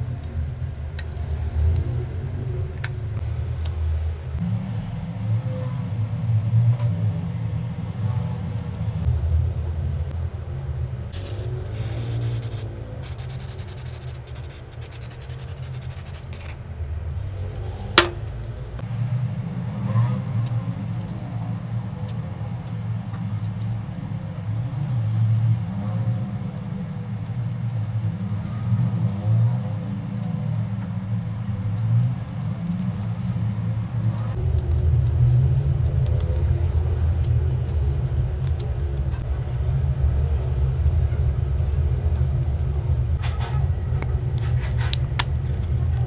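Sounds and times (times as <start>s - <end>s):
steady low rumble: 0.0s - 46.0s
aerosol can spraying: 11.2s - 16.3s.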